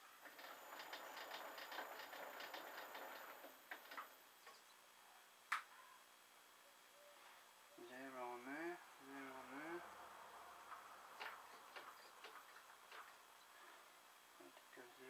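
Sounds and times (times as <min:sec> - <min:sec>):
lathe ticking with faint hiss: 0:00.2 - 0:04.2.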